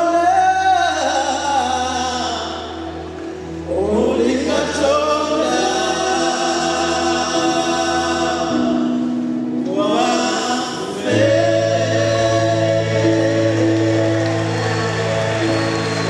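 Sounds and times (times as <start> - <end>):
male vocal quartet singing: 0.0 - 16.0.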